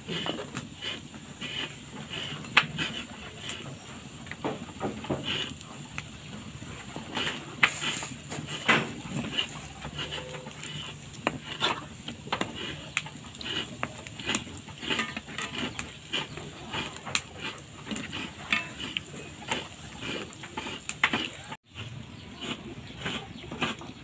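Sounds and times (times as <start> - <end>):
cakes deep-frying in hot oil: 0.0 - 24.0
oil pops and crackles: 4.2 - 9.7, 10.4 - 21.6.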